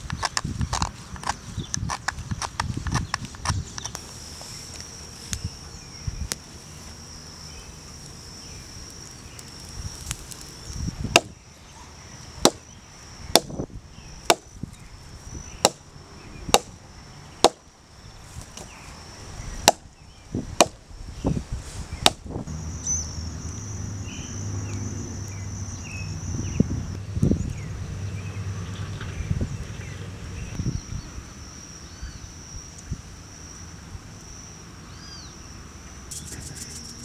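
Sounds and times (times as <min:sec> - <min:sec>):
hatchet chopping wooden log: 0:11.2 - 0:11.4, 0:12.4 - 0:12.6, 0:13.4 - 0:13.6, 0:14.3 - 0:14.5, 0:15.6 - 0:15.8, 0:16.5 - 0:16.7, 0:17.4 - 0:17.6.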